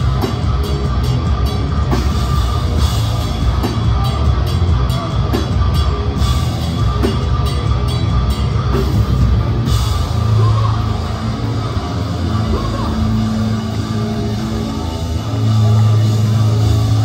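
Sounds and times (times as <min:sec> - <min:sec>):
bass: 0:00.0 - 0:17.0
distorted guitars: 0:00.0 - 0:17.0
heavy drums: 0:00.0 - 0:17.0.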